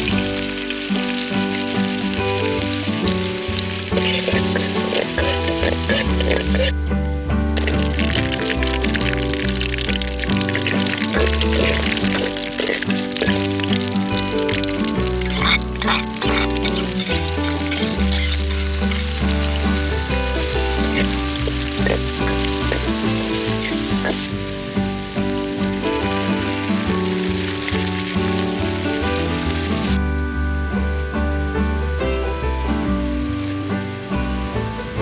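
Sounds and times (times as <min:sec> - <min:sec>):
tofu sizzling in hot oil: 0:00.0 - 0:06.7, 0:07.6 - 0:29.9
steel ladle scraping wok: 0:00.0 - 0:06.8, 0:07.6 - 0:24.7
background music: 0:00.0 - 0:35.0.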